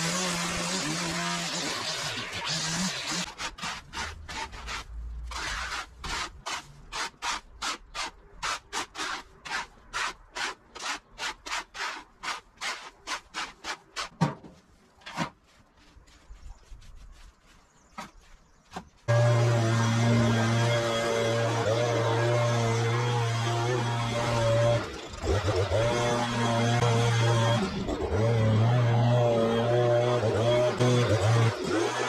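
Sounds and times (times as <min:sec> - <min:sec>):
string trimmer running: 0:19.1 - 0:32.0.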